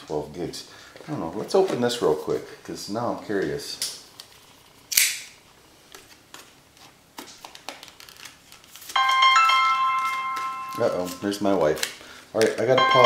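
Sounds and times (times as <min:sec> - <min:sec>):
plastic package crackling snap: 0:03.8 - 0:09.0, 0:10.0 - 0:12.8
chime ringing: 0:09.0 - 0:11.5, 0:12.7 - 0:13.0.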